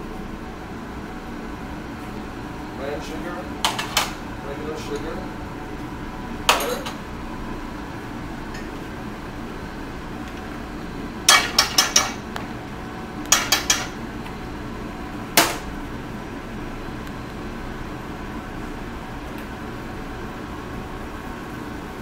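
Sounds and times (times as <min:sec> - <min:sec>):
steady background hum: 0:00.0 - 0:22.0
utensil tapping on metal cookware: 0:11.3 - 0:12.2, 0:13.3 - 0:13.9.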